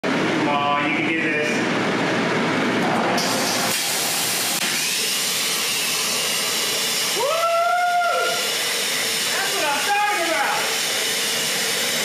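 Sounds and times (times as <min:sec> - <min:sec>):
plasma torch hissing: 0:03.2 - 0:12.0.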